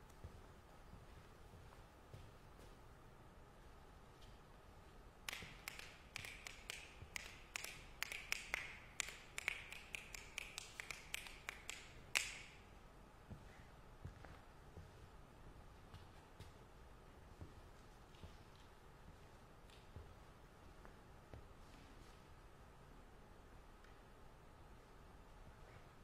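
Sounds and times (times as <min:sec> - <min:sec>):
fingers snapping: 0:05.3 - 0:12.6.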